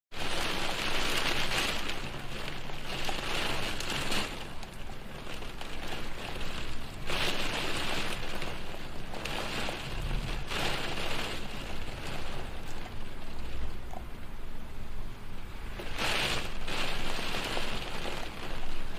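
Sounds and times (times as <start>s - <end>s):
rain on a window: 0.1s - 18.9s.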